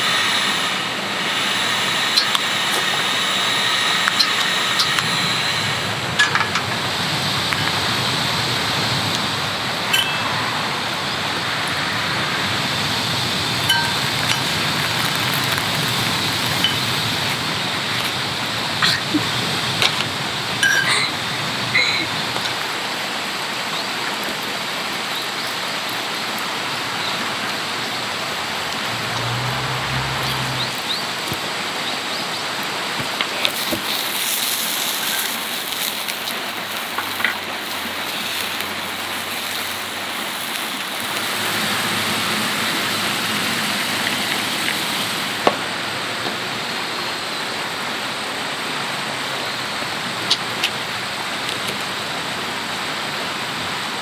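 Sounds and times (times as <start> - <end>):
water rushing: 0.0 - 54.0
sausages sizzling in skillet: 11.1 - 17.9, 33.4 - 45.4.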